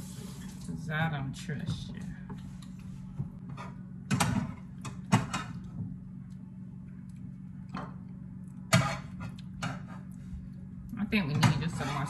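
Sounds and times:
low hum: 0.0 - 12.0
utensils clattering against pots: 11.1 - 12.0.

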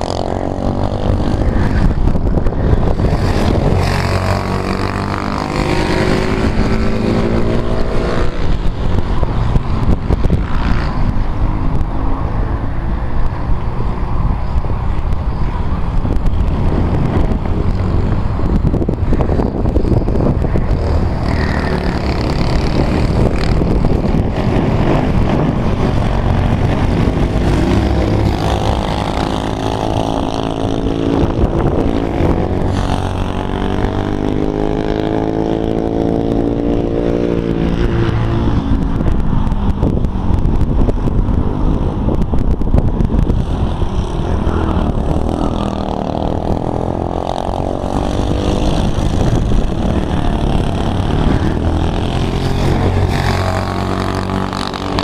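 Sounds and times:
kart engine revving: 0.0 - 11.5, 16.5 - 38.9, 43.0 - 55.0.

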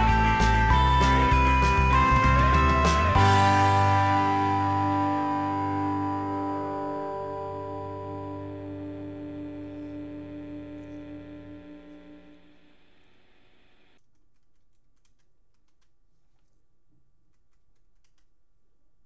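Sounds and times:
guitar chord ringing: 0.0 - 12.8.

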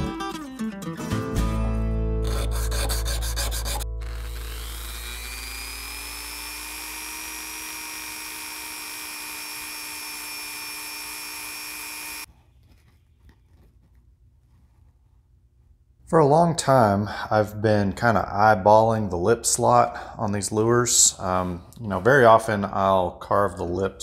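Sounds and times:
guitar music: 0.0 - 4.4
rotary tool whining: 2.2 - 13.7
sanding drum sanding lure: 2.3 - 3.8.

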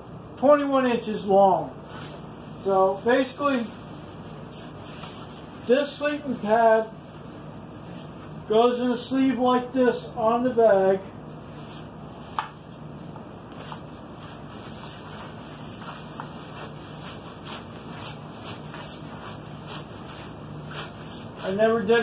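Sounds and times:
synthetic fabric rustling: 11.4 - 22.0.

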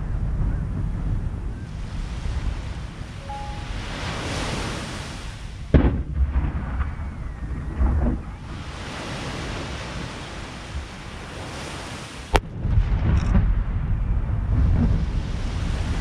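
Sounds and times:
low rolling rumble: 0.0 - 4.0, 5.2 - 8.7, 12.4 - 16.0
surf and wind hiss: 1.5 - 5.8, 8.3 - 12.4, 14.6 - 16.0
dull firework thump: 5.7 - 6.5.

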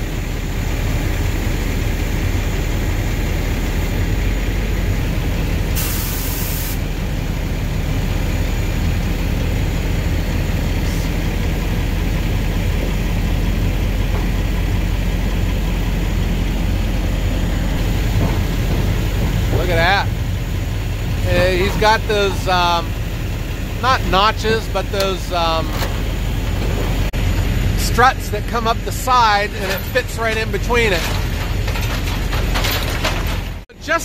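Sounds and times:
diesel engine running: 0.0 - 34.0
loader crane working: 0.0 - 34.0.

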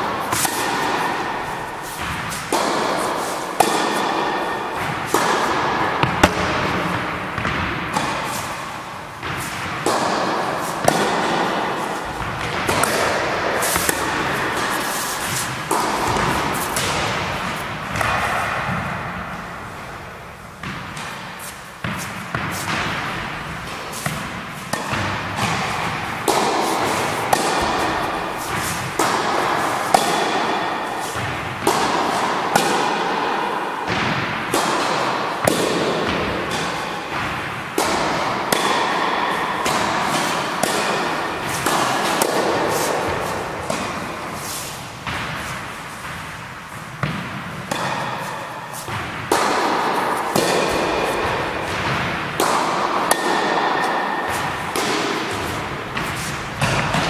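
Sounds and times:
tennis balls struck by rackets: 0.0 - 57.0
balls bouncing on wooden floor: 4.8 - 8.3, 12.0 - 19.4, 54.4 - 57.0.

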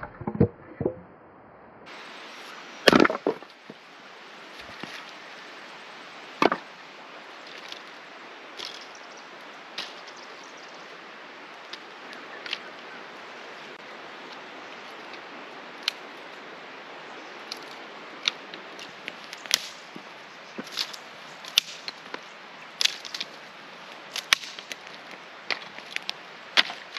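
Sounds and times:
steady background hiss: 1.1 - 26.9
split firewood knock: 2.9 - 3.4, 6.4 - 6.7, 19.5 - 22.2, 24.2 - 24.8
dry sticks snapping: 8.6 - 8.9, 9.8 - 10.0, 15.8 - 16.0, 17.4 - 26.9.

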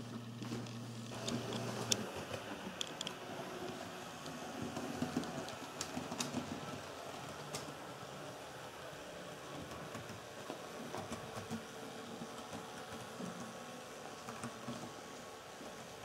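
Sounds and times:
model train electric hum: 0.0 - 16.0
wheels clicking on rail joints: 0.4 - 16.0.

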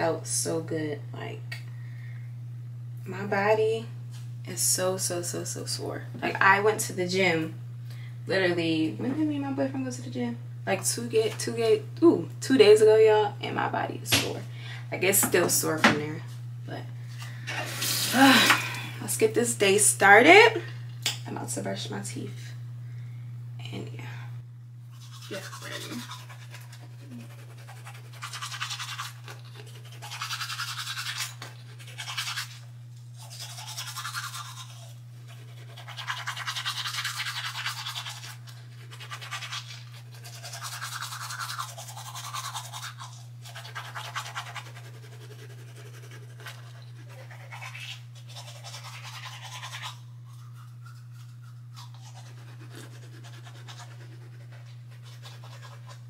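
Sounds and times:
steady low hum: 0.0 - 56.0
toothbrush scrubbing teeth: 24.9 - 56.0.

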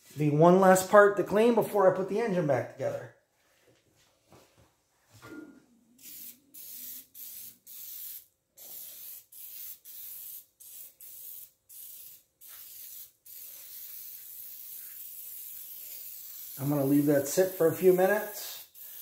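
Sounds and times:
aerosol can spraying: 6.0 - 19.0.

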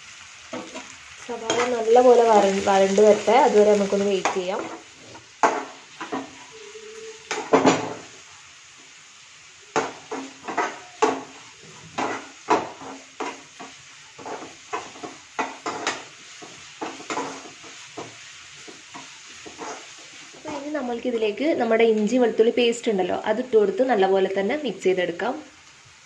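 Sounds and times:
skimmer scraping a frying pan: 3.9 - 6.5, 10.1 - 20.6.

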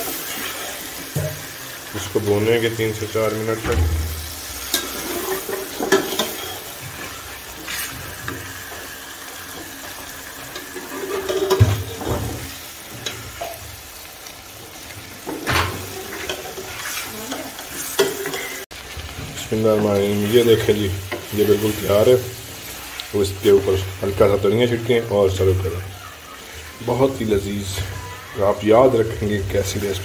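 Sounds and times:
meat sizzling in a pot: 0.0 - 30.0
spatula scraping a pot: 4.6 - 8.8, 10.4 - 12.1, 15.8 - 18.6.

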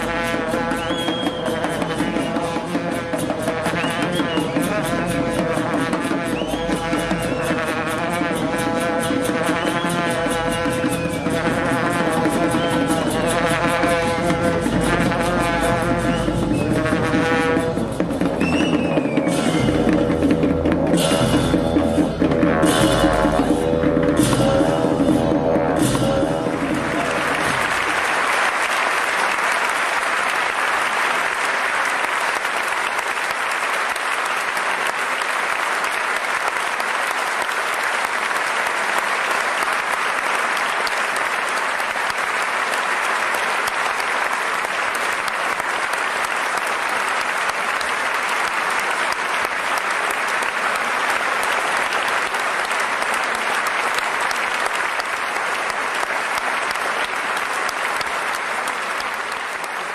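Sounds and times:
audience applauding: 0.0 - 21.5, 25.5 - 59.9.

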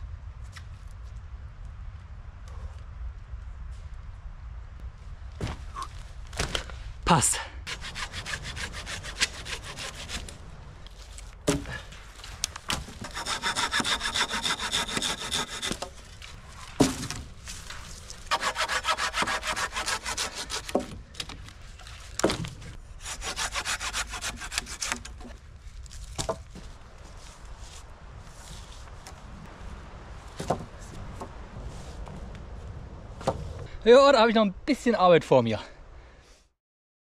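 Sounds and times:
hand saw cutting wood: 7.7 - 10.4, 12.9 - 16.0, 18.3 - 21.0, 23.0 - 25.3.

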